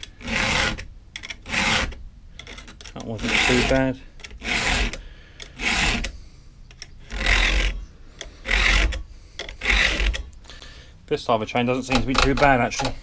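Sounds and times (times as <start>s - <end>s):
file rasping on saw chain: 0.0s - 6.2s, 6.9s - 10.3s.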